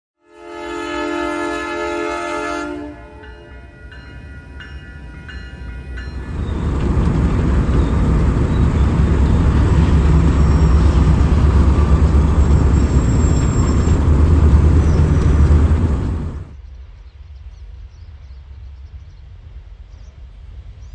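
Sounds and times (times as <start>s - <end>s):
freight train rumble: 0.3s - 16.7s
level-crossing bell ringing: 3.2s - 6.6s.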